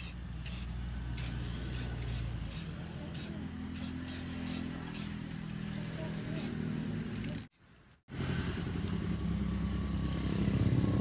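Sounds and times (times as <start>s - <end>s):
spray paint can hissing: 0.0s - 5.1s.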